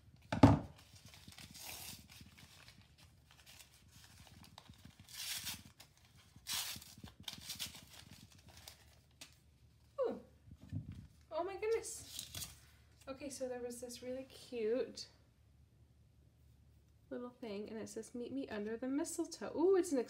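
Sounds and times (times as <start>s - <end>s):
paper wrapping tearing and crinkling: 0.7s - 9.4s, 12.0s - 12.6s.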